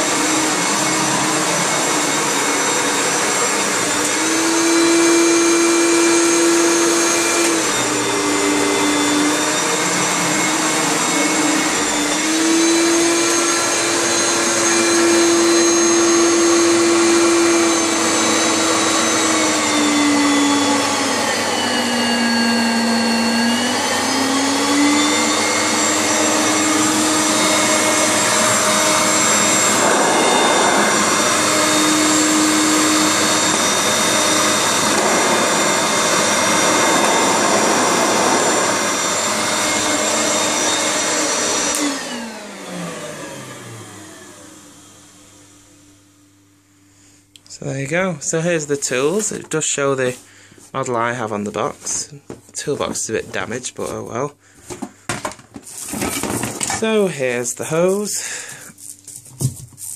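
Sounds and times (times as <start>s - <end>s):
vacuum cleaner motor whine: 0.0s - 46.8s.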